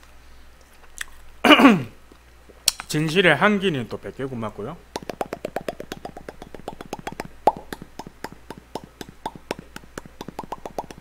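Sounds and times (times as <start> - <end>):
wet lip smacks: 5.0 - 11.0.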